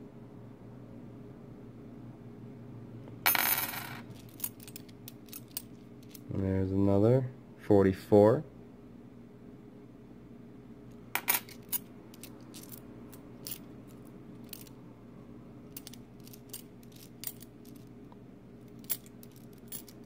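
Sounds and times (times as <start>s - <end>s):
faint steady hum: 0.0s - 20.0s
coins clicking and clinking: 3.2s - 6.3s, 11.1s - 14.8s, 15.7s - 17.9s, 18.6s - 20.0s.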